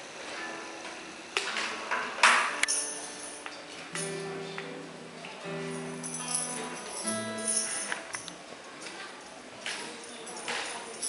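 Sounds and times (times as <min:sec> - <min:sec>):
acoustic guitar strummed: 0:02.4 - 0:08.3.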